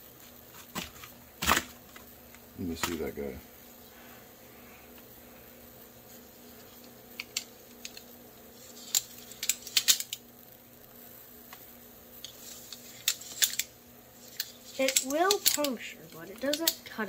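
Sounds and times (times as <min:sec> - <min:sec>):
butterfly knife handles clicking: 0:14.3 - 0:16.9.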